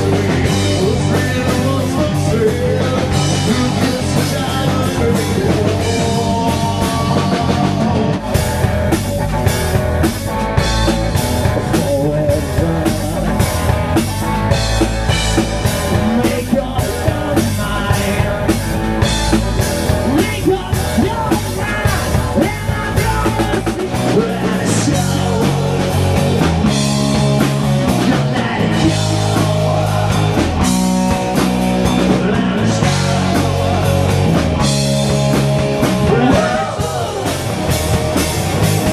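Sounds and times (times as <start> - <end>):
person singing: 0.0 - 8.2, 15.9 - 19.2, 20.0 - 26.2, 27.8 - 34.2, 35.9 - 37.9
bass riff: 0.0 - 38.9
drum kit: 0.0 - 38.9
electric guitars: 0.0 - 38.9.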